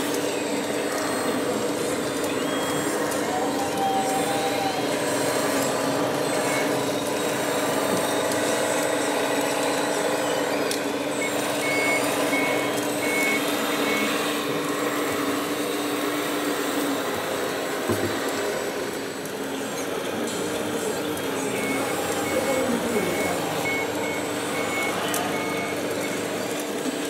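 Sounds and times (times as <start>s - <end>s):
engine drone: 0.0s - 27.0s
reversing alarm beeping: 1.3s - 16.2s, 20.7s - 26.8s.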